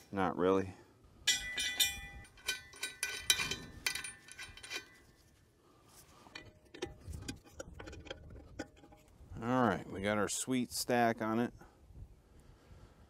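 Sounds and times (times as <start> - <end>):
metal clinks and knocks: 1.2 - 5.3, 6.2 - 9.2.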